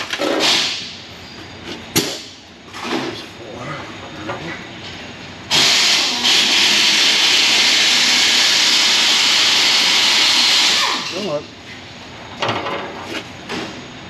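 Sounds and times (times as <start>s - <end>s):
loud steady hiss: 5.5s - 11.5s.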